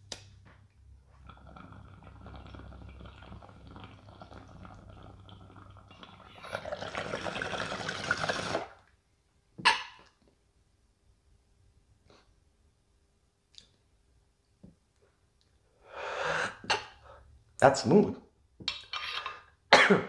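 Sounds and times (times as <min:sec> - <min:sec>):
water bubbling in a bong: 0:01.2 - 0:08.8.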